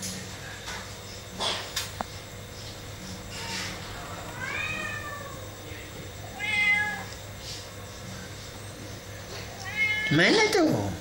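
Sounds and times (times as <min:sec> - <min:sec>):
kitten meowing: 0:04.3 - 0:05.5, 0:06.3 - 0:07.1, 0:09.6 - 0:10.2.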